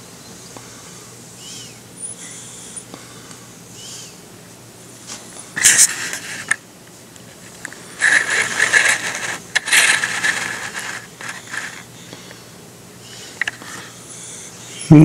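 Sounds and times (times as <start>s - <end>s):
handling noise on microphone: 7.2s - 11.9s.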